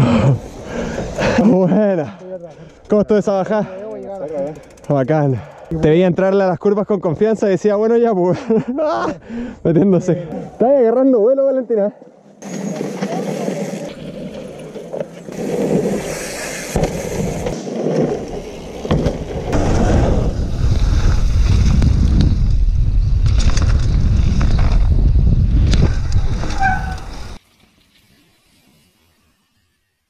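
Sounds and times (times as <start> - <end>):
bike knocks and rattles: 16.7 - 20.3
wind buffeting microphone: 19.5 - 27.4.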